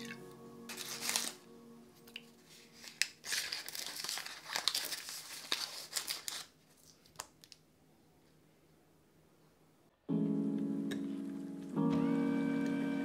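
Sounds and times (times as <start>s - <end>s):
plastic packet crinkling: 0.0s - 1.4s, 2.1s - 7.6s.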